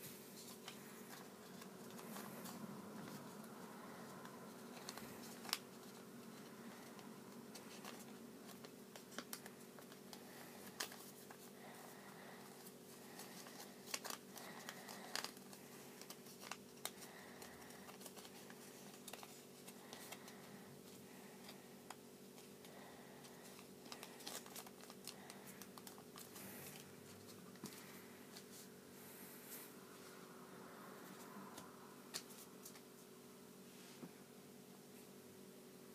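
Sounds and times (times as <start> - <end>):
paper rustling and crinkling: 0.0 - 28.8
steady low hum: 0.0 - 35.9.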